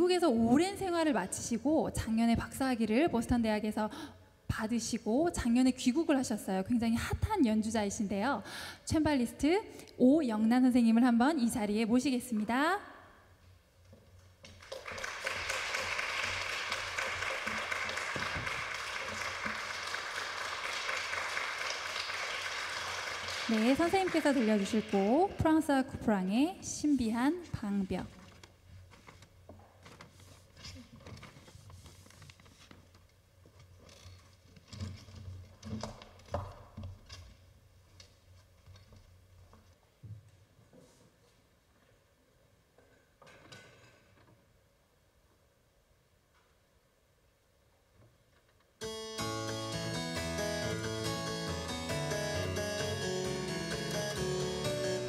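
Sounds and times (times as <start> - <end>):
audience applauding: 14.6 - 25.4, 49.2 - 55.0.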